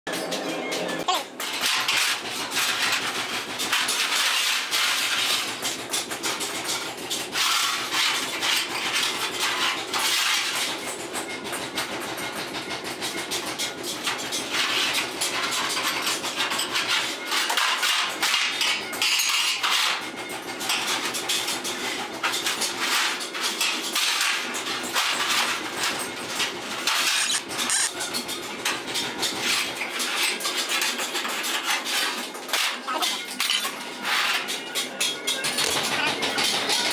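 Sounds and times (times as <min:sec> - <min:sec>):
machine running: 0:26.6 - 0:28.0.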